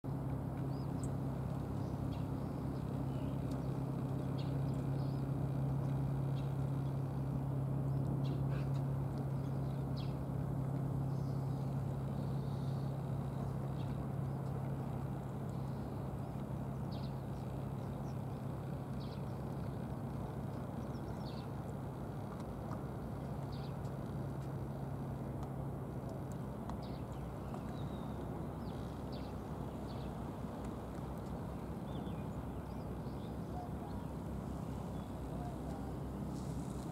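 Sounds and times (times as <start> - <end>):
low mechanical hum: 0.1 - 36.9
bird chirps: 31.8 - 36.8.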